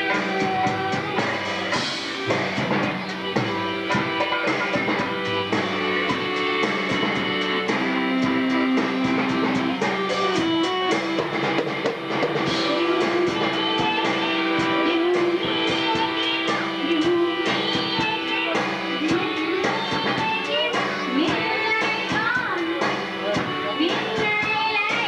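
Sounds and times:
song with guitar drums and singing: 0:00.0 - 0:25.0.

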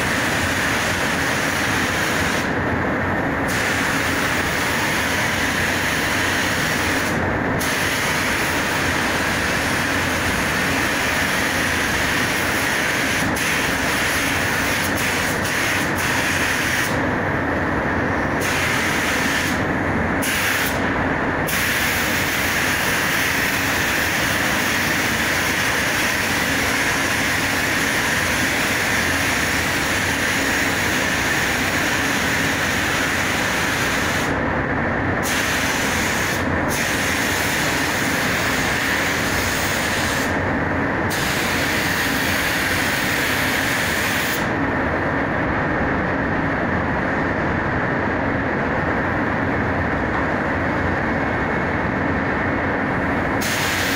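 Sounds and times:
paint spray gun hissing: 0:53.4 - 0:53.9.

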